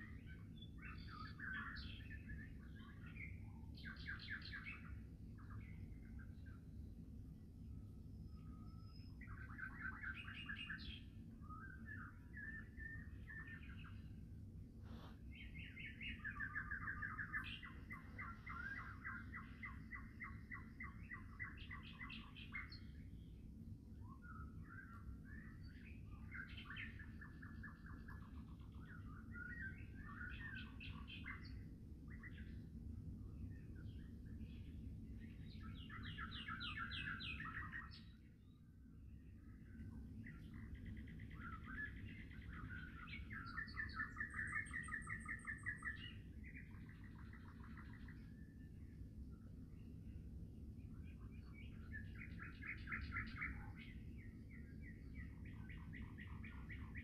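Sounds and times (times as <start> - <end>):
songbird chattering song: 0.0 - 57.0.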